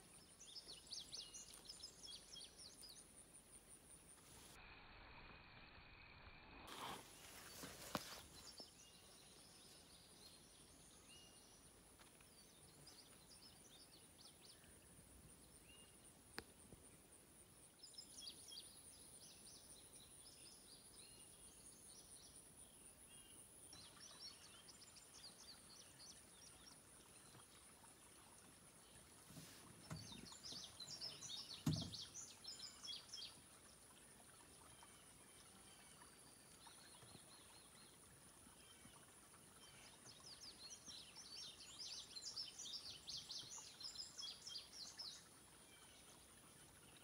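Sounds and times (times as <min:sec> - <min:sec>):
birds chirping: 0:29.0 - 0:33.4.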